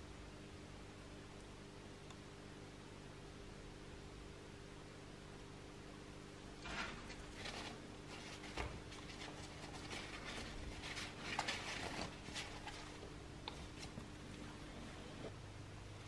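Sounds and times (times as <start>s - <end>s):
paper towel rubbing metal toy: 6.6s - 13.0s.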